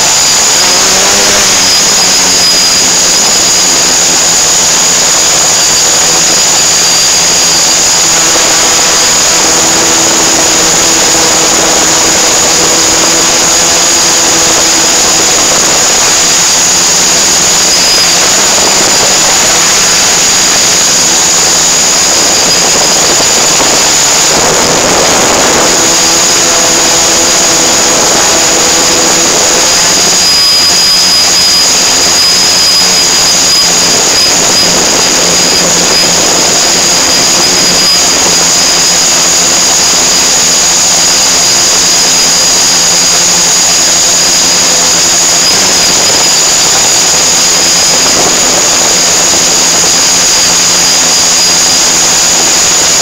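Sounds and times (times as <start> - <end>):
drone motors whining: 0.0 - 53.0.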